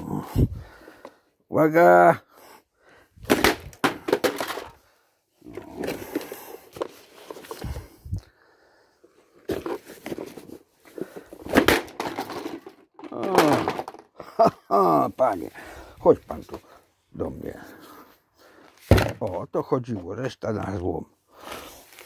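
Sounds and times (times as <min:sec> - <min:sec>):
loose parts rattling: 0:03.2 - 0:04.8, 0:09.5 - 0:14.4
plastic slammed onto concrete: 0:03.2 - 0:04.8, 0:11.4 - 0:14.1, 0:18.9 - 0:19.4.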